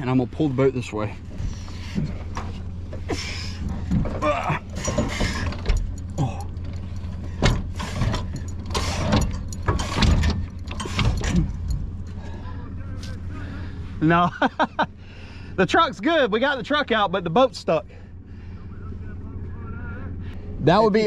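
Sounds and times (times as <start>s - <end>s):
jack gearing clicking and grinding: 1.2s - 12.4s.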